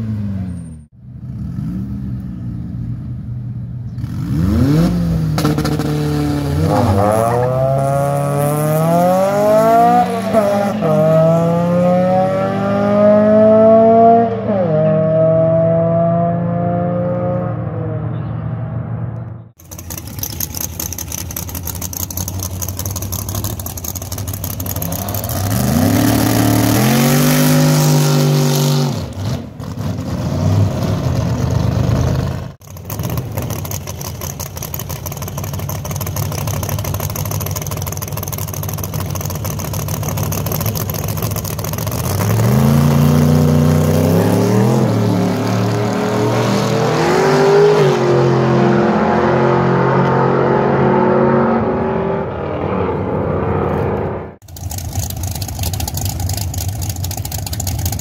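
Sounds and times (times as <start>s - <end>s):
racing car engines accelerating: 4.0s - 20.4s, 41.9s - 54.4s.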